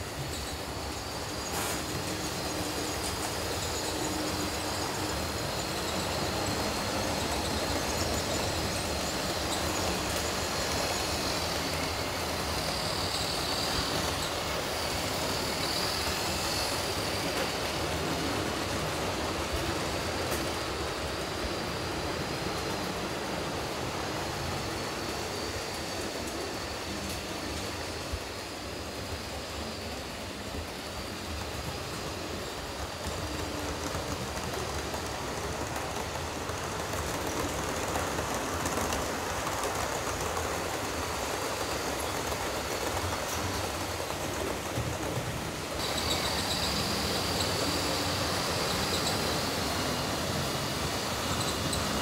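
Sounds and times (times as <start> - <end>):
model trains whirring on track: 0.0 - 52.0.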